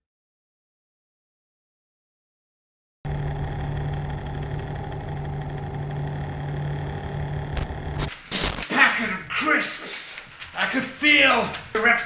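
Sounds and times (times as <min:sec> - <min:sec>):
low mechanical hum: 0:03.1 - 0:08.6.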